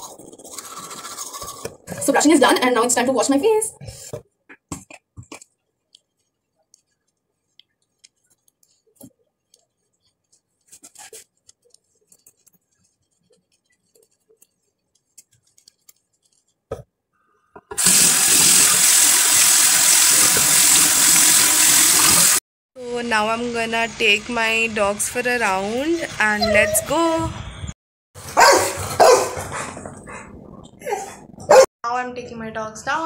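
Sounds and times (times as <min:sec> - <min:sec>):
water running from a faucet: 0:17.8 - 0:22.4.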